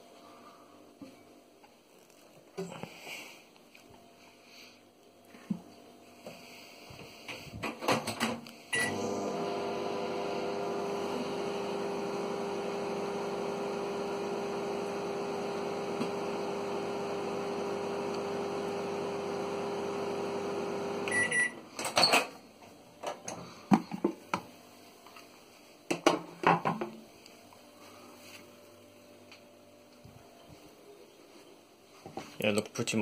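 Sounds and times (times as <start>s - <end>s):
microwave oven humming: 8.8s - 21.6s.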